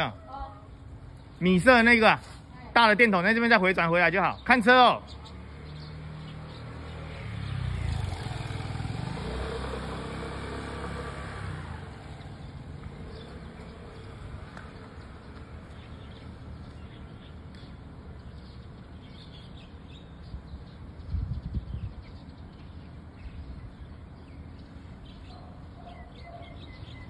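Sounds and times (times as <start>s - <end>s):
road background noise: 0.0s - 27.0s
vehicle passing by: 4.8s - 17.3s.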